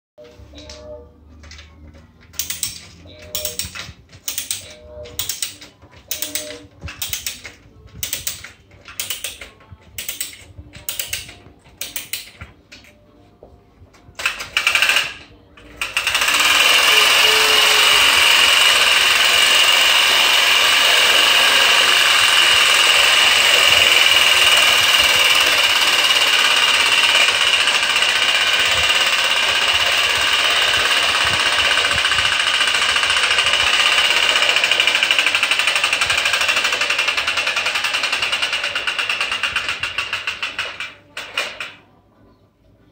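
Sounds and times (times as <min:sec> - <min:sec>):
clockwork key ratcheting: 0:02.3 - 0:12.4
toy train motor whirring: 0:02.4 - 0:12.4, 0:14.2 - 0:41.8.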